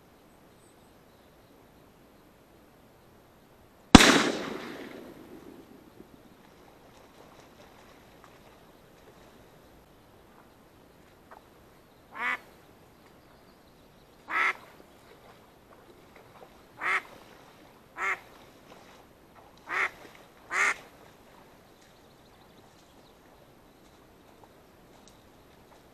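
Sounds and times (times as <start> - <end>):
duck quacking: 12.1 - 12.4, 14.3 - 14.6, 16.8 - 17.0, 18.0 - 18.2, 19.7 - 19.9, 20.5 - 20.8.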